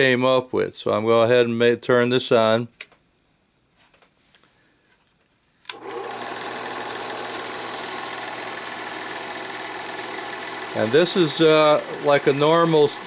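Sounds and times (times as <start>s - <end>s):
projector motor rattling: 5.7s - 13.0s.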